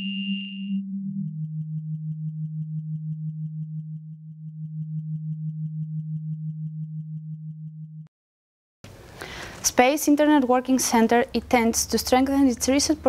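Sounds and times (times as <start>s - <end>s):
faint high beeps: 0.0s - 0.8s
pulsing low synthesizer tone: 0.5s - 8.1s.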